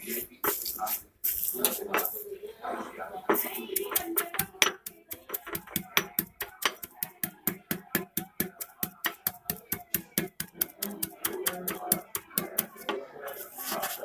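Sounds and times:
stone pestle pounding in mortar: 0:03.3 - 0:13.0.

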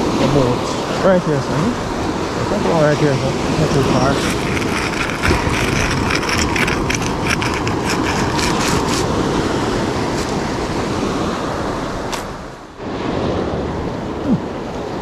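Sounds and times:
wind: 0:00.0 - 0:15.0
pebbles clicking and crunching: 0:04.0 - 0:09.2.

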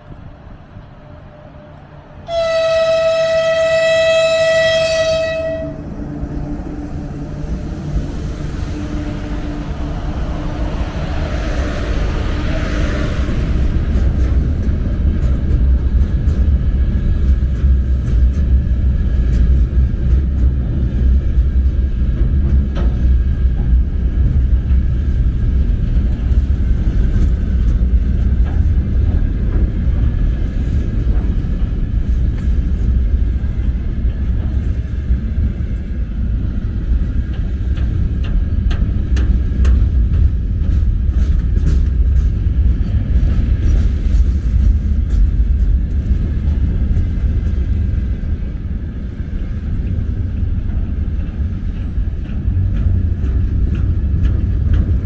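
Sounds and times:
freight train rumbling past: 0:00.0 - 0:55.0.

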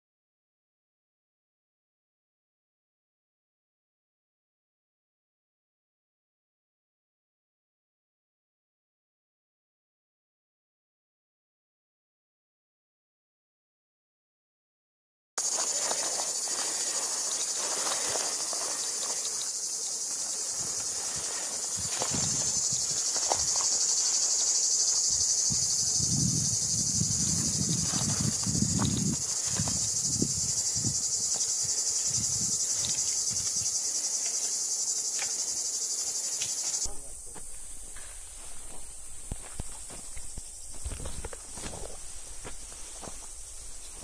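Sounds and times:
insects chirring: 0:15.4 - 0:44.0
low rustles and thuds: 0:21.8 - 0:23.6, 0:37.1 - 0:44.0.

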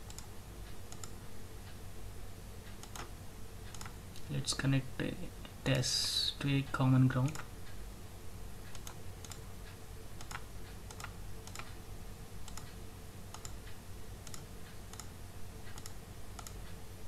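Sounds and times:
computer mouse clicking: 0:00.0 - 0:01.2, 0:02.6 - 0:04.3, 0:07.2 - 0:07.5, 0:08.6 - 0:11.8, 0:12.4 - 0:16.8
faint low hum: 0:00.0 - 0:17.0.

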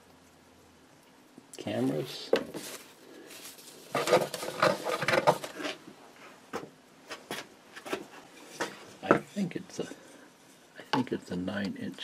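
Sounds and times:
paper and cardboard crinkling: 0:02.5 - 0:05.8.

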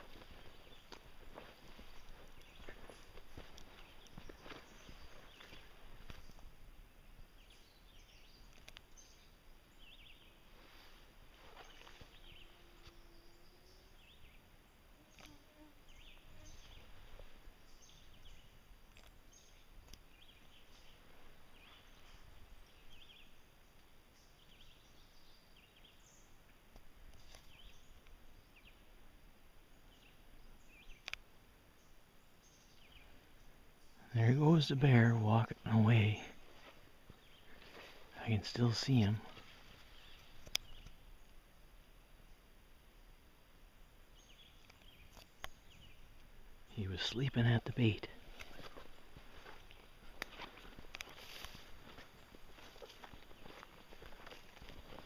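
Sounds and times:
footsteps through undergrowth: 0:00.0 - 0:06.5, 0:10.0 - 0:13.4, 0:15.2 - 0:18.4, 0:20.1 - 0:23.2, 0:35.6 - 0:40.8, 0:48.1 - 0:55.0.

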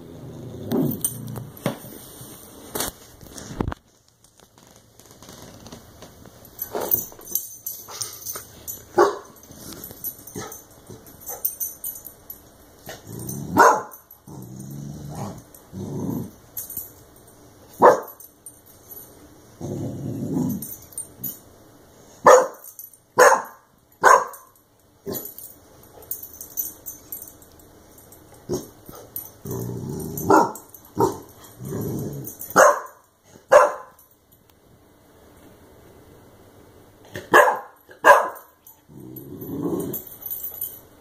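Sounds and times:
puppy growling: 0:00.0 - 0:01.6, 0:12.9 - 0:16.4, 0:19.6 - 0:20.7, 0:28.4 - 0:32.4, 0:38.8 - 0:40.1
puppy barking: 0:09.0 - 0:09.4, 0:13.6 - 0:14.0, 0:17.8 - 0:18.2, 0:22.2 - 0:22.6, 0:23.2 - 0:24.5, 0:30.3 - 0:31.1, 0:32.6 - 0:34.0, 0:37.2 - 0:38.5.

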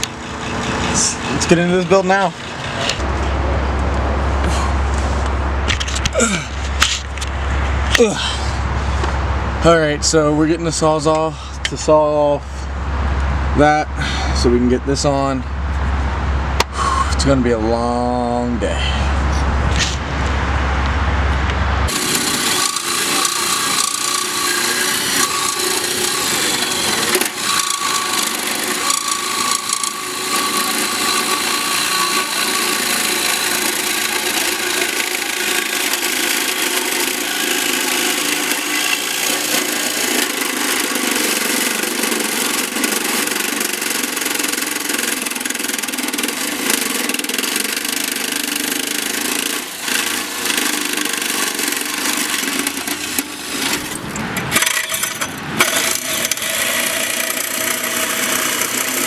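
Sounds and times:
saw blade grating on metal: 0:00.0 - 0:03.4, 0:21.9 - 0:59.0.

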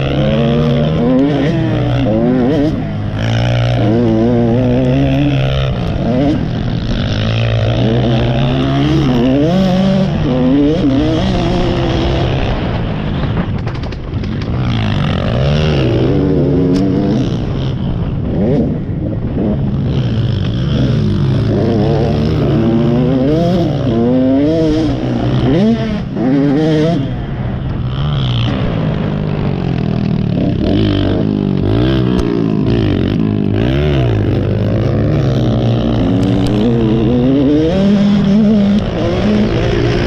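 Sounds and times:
motocross bike engine revving: 0:00.0 - 0:40.0.

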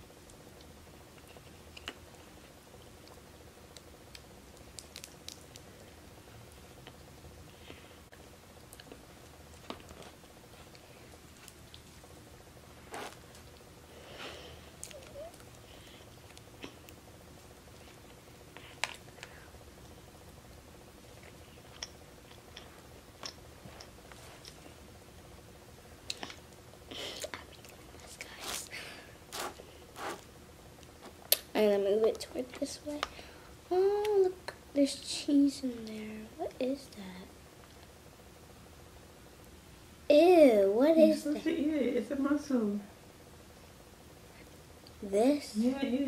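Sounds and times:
low room hum: 0:00.0 - 0:46.0
faint eating clicks and smacks: 0:00.2 - 0:12.3, 0:13.0 - 0:13.8, 0:14.7 - 0:20.4, 0:21.0 - 0:25.4, 0:26.0 - 0:33.3, 0:37.6 - 0:38.0.

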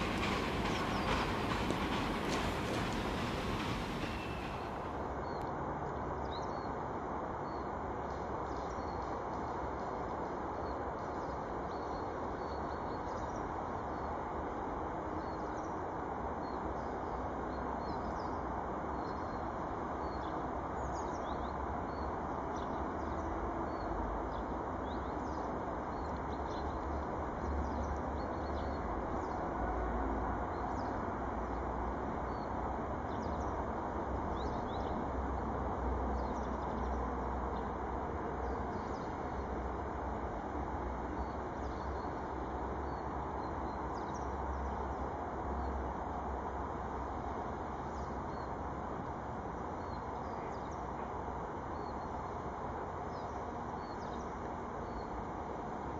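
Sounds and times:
small birds chirping: 0:00.0 - 0:04.9.

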